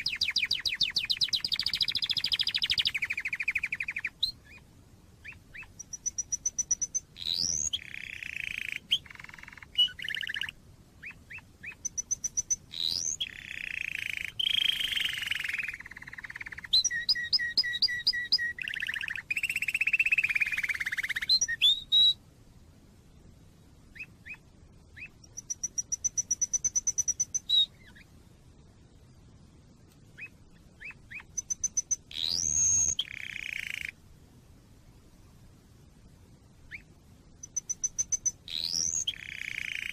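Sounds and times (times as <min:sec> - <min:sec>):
canary singing: 0:00.0 - 0:04.6, 0:05.2 - 0:22.2, 0:25.0 - 0:28.1, 0:30.2 - 0:34.0, 0:36.7 - 0:39.9.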